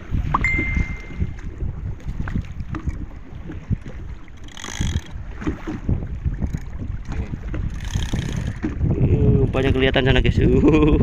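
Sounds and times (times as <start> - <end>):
waves lapping against boat: 0.0 - 11.0
wind buffeting microphone: 0.0 - 11.0
brief high-pitched sound: 0.4 - 1.3.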